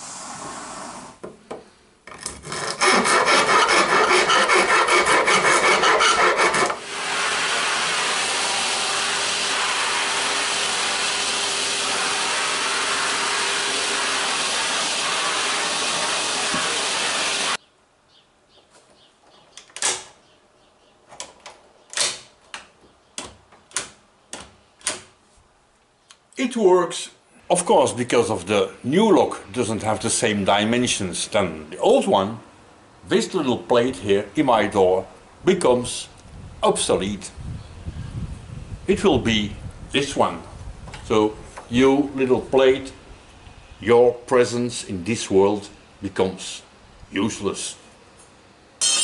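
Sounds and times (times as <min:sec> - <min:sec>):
hand file rasping on metal: 0:02.4 - 0:06.8
vacuum cleaner humming: 0:06.8 - 0:17.6
sharp clicks and knocks: 0:21.1 - 0:25.2.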